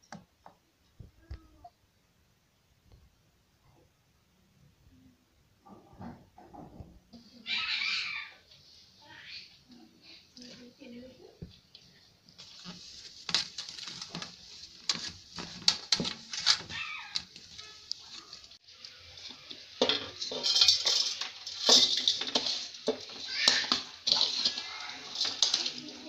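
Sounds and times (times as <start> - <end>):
metal utensils scraping a pan: 12.4 - 26.0.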